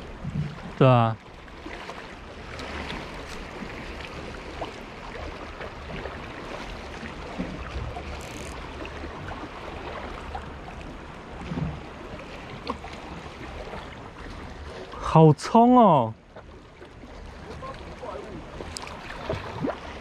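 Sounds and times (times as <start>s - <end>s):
water noise: 0.0s - 20.0s
faint ticks: 8.1s - 8.6s.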